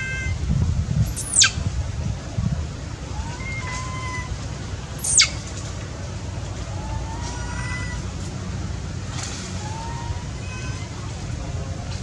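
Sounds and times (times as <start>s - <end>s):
steady low rumble: 0.0s - 12.0s
young macaque squealing: 1.1s - 1.6s, 3.2s - 4.3s, 5.0s - 5.4s
macaque soft coo calls: 5.0s - 5.4s.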